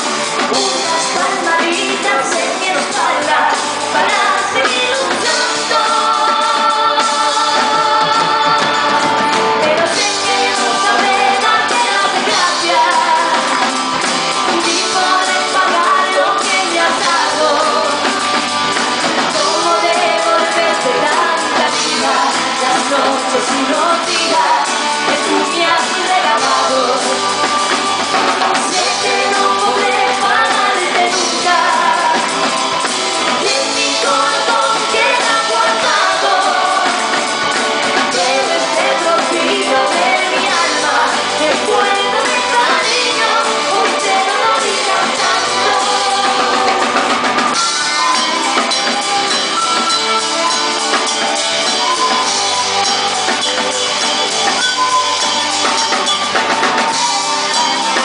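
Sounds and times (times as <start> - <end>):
drums: 0.0 - 58.0
guitar: 0.0 - 58.0
woman singing pop song: 0.4 - 27.5, 28.5 - 49.0.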